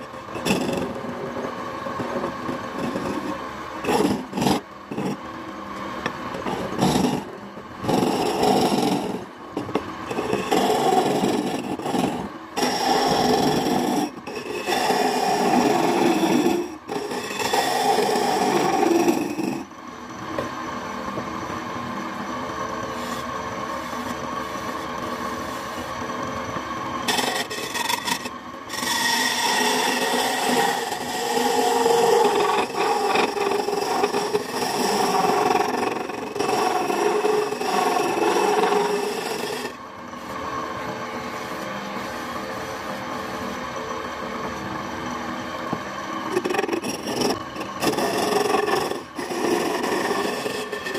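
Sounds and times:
chisel scraping wood: 0:00.0 - 0:01.0, 0:02.0 - 0:05.2, 0:06.4 - 0:19.7, 0:27.0 - 0:39.8, 0:46.3 - 0:50.9
wood lathe humming: 0:00.0 - 0:50.9.

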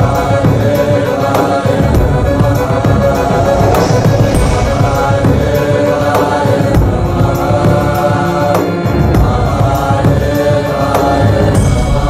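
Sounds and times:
low percussion: 0:00.0 - 0:10.2
voices chanting long notes: 0:00.0 - 0:12.0.

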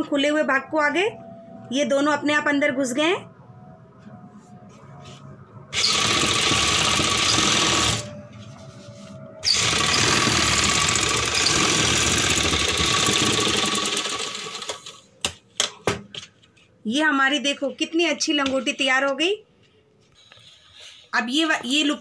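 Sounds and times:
sewing machine stitching: 0:05.8 - 0:08.1, 0:09.4 - 0:15.0.

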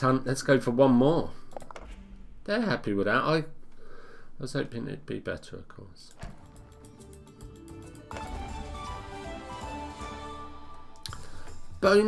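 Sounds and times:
slot game music: 0:06.4 - 0:11.0.

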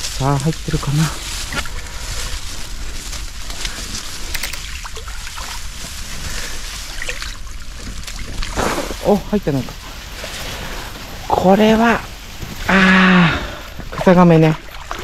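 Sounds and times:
water sloshing and trickling: 0:00.0 - 0:12.8, 0:13.4 - 0:15.0.

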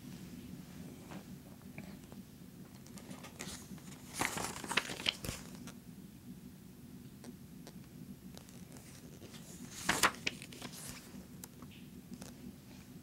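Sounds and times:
magazine pages turning: 0:02.8 - 0:05.7, 0:08.4 - 0:11.2
paper crinkling: 0:02.8 - 0:05.7, 0:08.4 - 0:11.2.

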